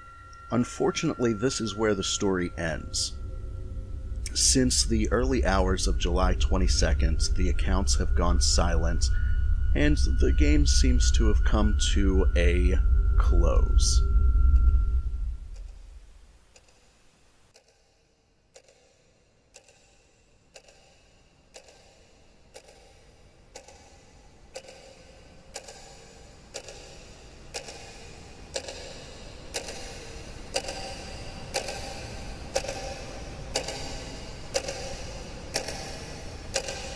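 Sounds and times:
low rumble: 0.0s - 16.4s
clock ticking: 4.2s - 12.8s, 19.5s - 19.9s, 20.5s - 36.9s.

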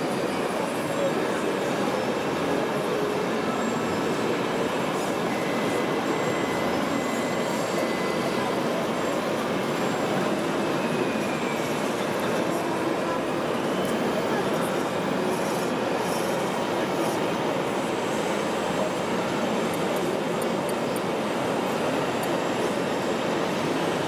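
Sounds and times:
faint high whine: 0.0s - 24.0s
rumbling din of indoor crowd: 0.0s - 24.0s.

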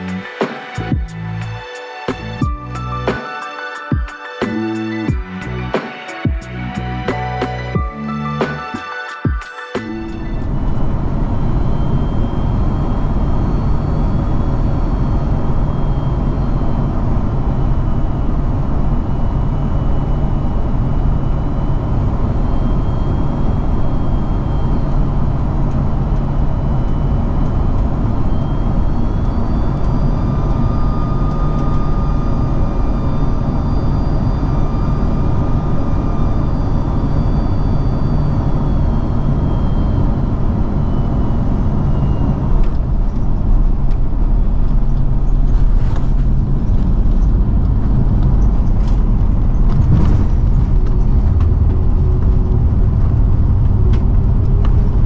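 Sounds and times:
aircraft engine and airflow rush: 0.0s - 55.0s
whining engine tones: 0.0s - 55.0s
runway rumble: 40.3s - 55.0s.

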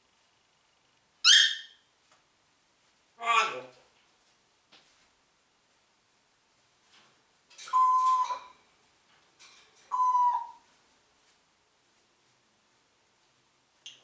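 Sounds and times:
parrot squawking and whistling: 1.2s - 1.8s, 9.9s - 10.6s.

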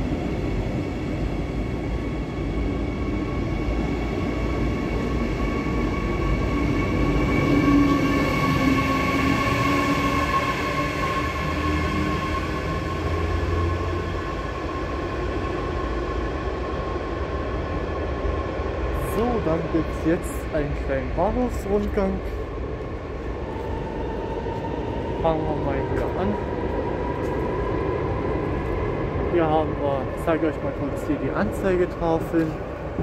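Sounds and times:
electric locomotive whine: 0.0s - 33.0s.

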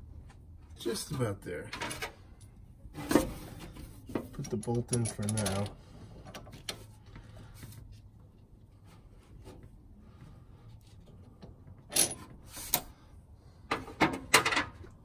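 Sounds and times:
metal clinks of hand tool and bolts: 4.4s - 5.8s.

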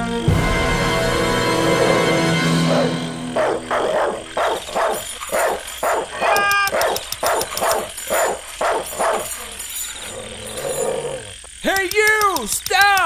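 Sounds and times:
dog yelp: 2.7s - 9.6s
dog barking rapidly: 2.7s - 9.7s.

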